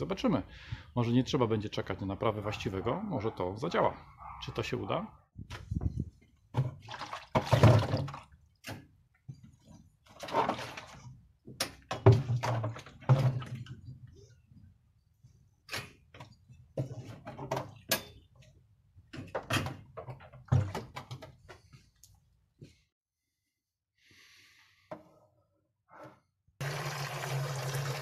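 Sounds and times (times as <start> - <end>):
plastic barrel knocking and scraping: 5.5 - 8.3, 9.3 - 14.0.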